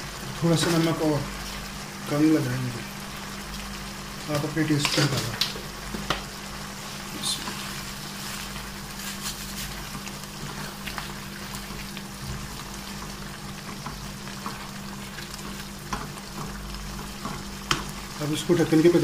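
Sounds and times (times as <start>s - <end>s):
gravy bubbling and popping: 4.8s - 18.2s
spatula stirring: 7.2s - 19.0s.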